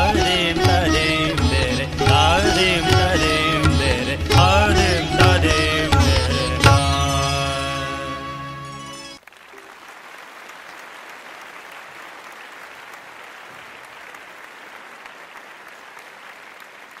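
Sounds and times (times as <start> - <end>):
audience applause: 9.2 - 17.0.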